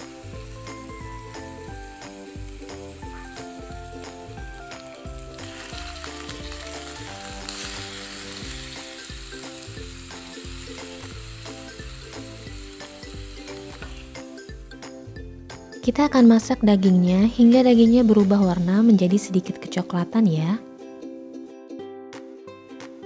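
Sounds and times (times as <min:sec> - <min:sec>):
meat sizzling in frying pan: 0:00.0 - 0:15.1
soft background music: 0:00.0 - 0:23.0.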